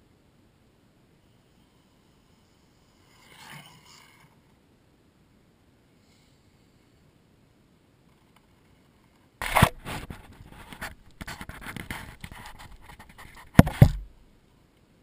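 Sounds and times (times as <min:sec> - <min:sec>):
scratchy rubbing on camera: 0:09.4 - 0:14.1
camera bump: 0:09.4 - 0:14.2
camera knocks on surface: 0:13.4 - 0:14.1.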